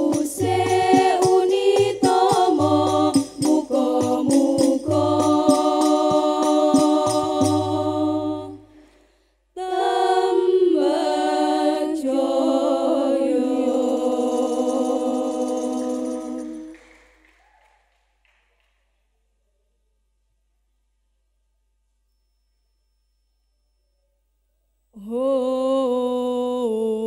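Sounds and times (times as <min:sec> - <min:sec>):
frame drum strokes: 0:00.0 - 0:08.0
women singing in unison: 0:00.0 - 0:08.7, 0:09.6 - 0:16.9, 0:25.0 - 0:27.0.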